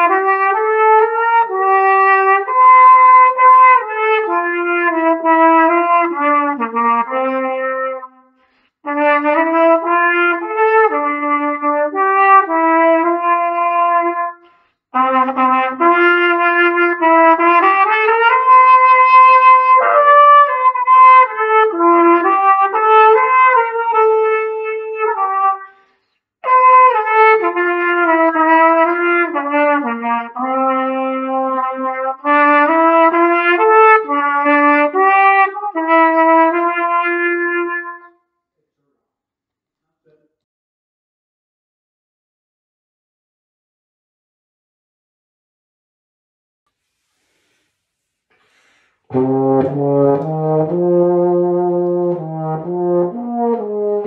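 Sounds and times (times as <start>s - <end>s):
cornet melody: 49.1s - 54.0s.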